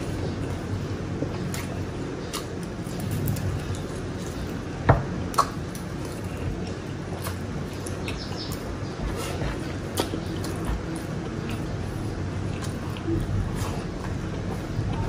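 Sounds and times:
chewing with mouth full: 0.0 - 15.0
low background hum: 0.0 - 15.0.

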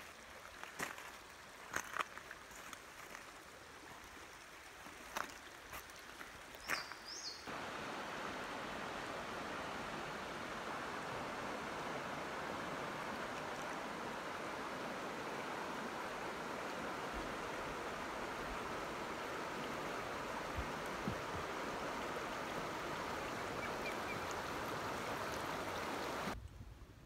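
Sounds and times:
creek water running over rocks: 0.0 - 26.4.

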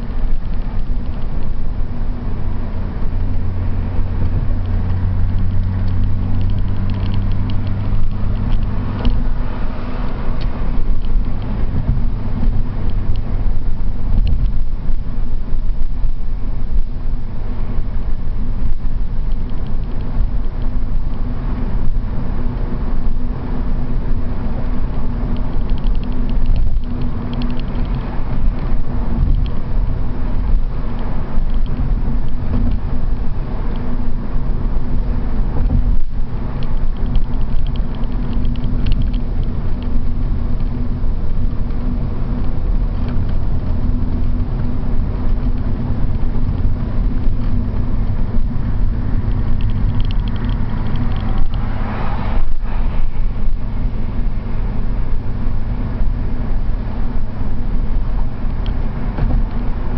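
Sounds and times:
car engine running steadily: 0.0 - 59.9
steady low hum: 0.0 - 59.9
tyre and road rumble: 0.0 - 59.9.

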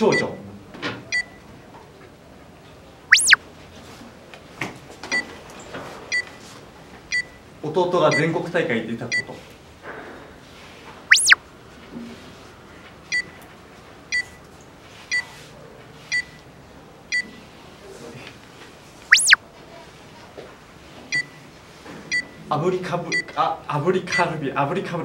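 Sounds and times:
short electronic beeps: 3.1 - 3.4, 11.1 - 11.4, 19.1 - 19.4
swoosh sound effect: 11.1 - 11.4.

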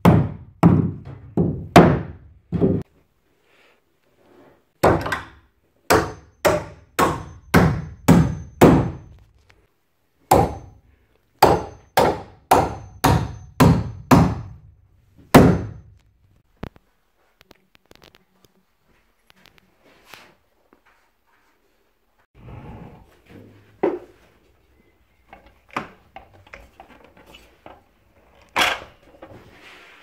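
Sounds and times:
hammer driving nails into wood: 4.8 - 9.2, 10.3 - 10.8, 11.4 - 14.6, 15.3 - 15.8.

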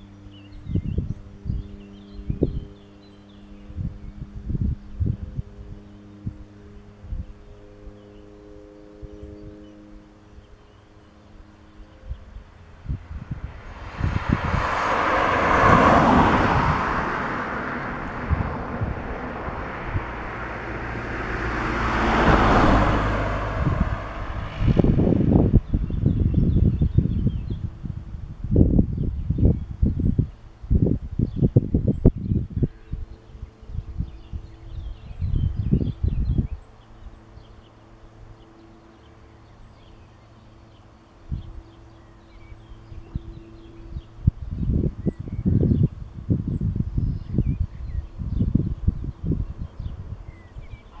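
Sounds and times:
steady low hum: 0.0 - 51.0
vehicles passing close by: 0.0 - 51.0
small birds chirping: 31.2 - 51.0.

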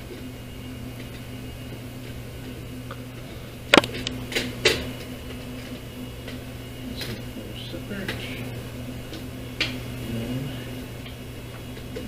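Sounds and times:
sharp plastic-and-metal clicks: 3.8 - 4.1.

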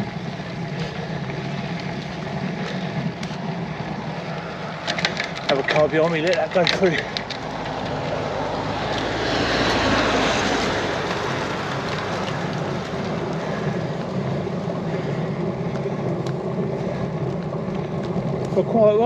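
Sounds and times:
suv passing close by: 5.5 - 14.2.

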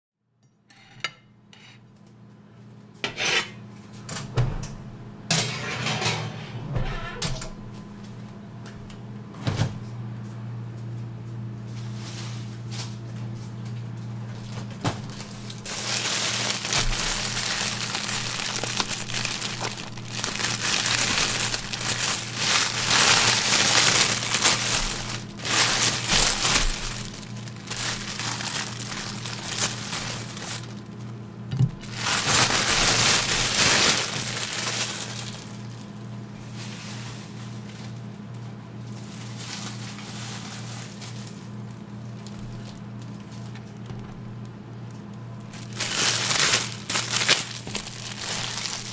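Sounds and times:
steady low hum: 0.7 - 48.9
plastic bread bag crinkling: 14.3 - 38.1, 38.8 - 44.5, 45.4 - 48.9.

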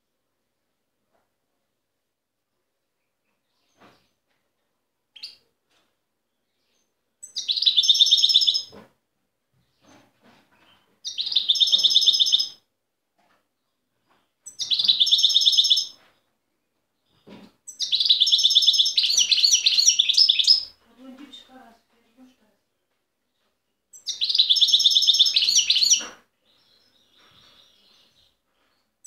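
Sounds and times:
goldfinch singing: 11.0 - 12.6, 14.5 - 15.9, 17.7 - 20.8, 24.0 - 26.2.

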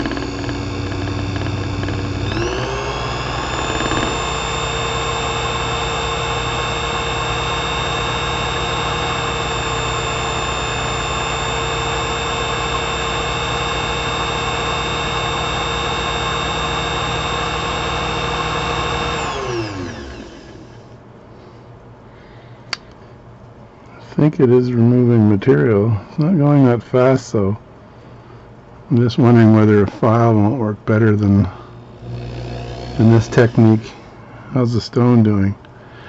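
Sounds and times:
lathe motor whine: 0.0 - 20.9, 31.4 - 34.2
faint hum: 0.0 - 36.0.

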